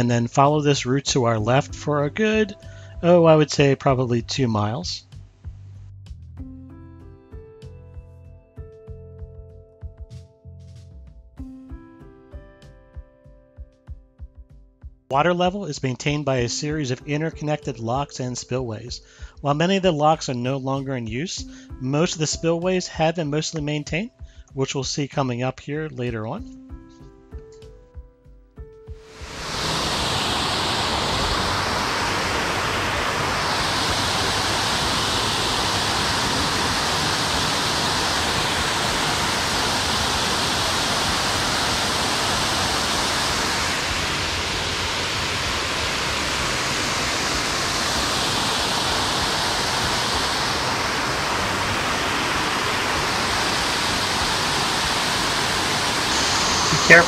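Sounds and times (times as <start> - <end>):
water rushing over weirs: 29.1 - 57.0.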